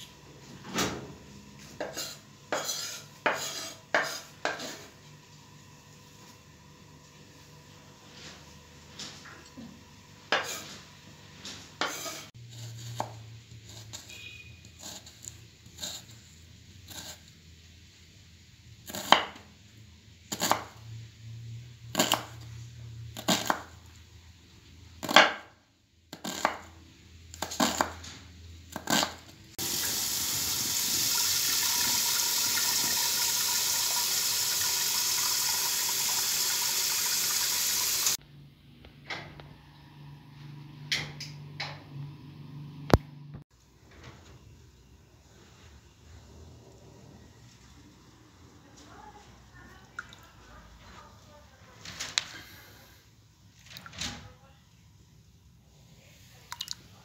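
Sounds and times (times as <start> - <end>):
knife chopping on wooden board: 1.8 - 4.8, 18.9 - 19.4, 20.4 - 20.7, 25.0 - 25.5, 26.2 - 26.7.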